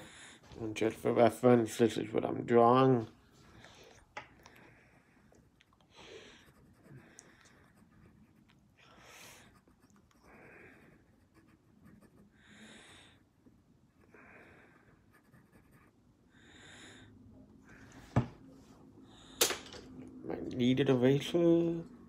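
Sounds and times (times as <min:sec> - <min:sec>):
pencil sketching on paper: 0:06.2 - 0:16.3.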